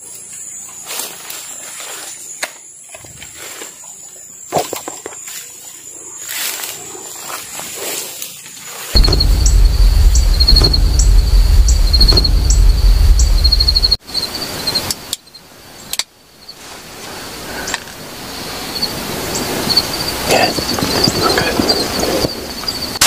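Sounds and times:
heavy low rumble: 9.0 - 14.0
sharp clicks: 9.0 - 14.0.

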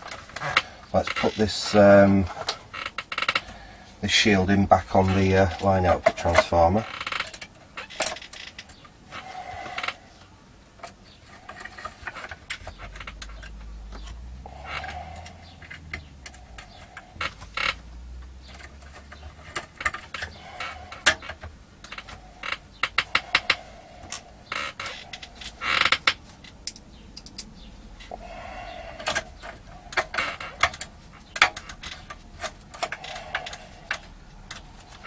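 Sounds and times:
small clicks and knocks of metal: 5.1 - 9.0, 9.7 - 28.2, 29.0 - 35.0
sharp clicks: 25.4 - 27.7.

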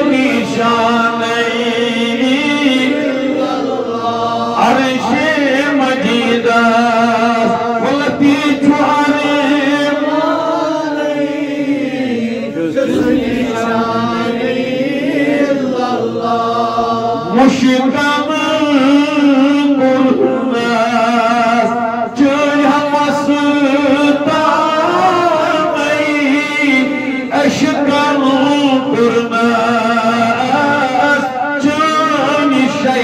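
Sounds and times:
man chanting devotional verse: 0.0 - 33.0.

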